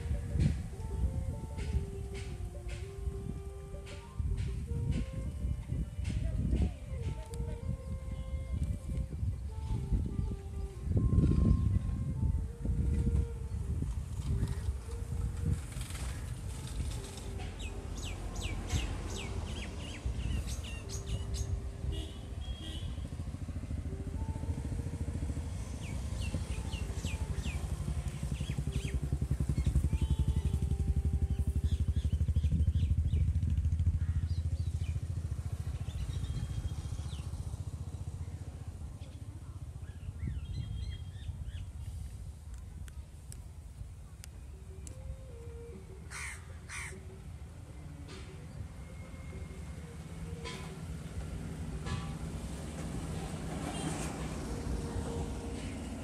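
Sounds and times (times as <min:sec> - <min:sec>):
engine rumbling: 0:00.0 - 0:56.0
birds chirping: 0:17.6 - 0:22.9, 0:25.6 - 0:33.4.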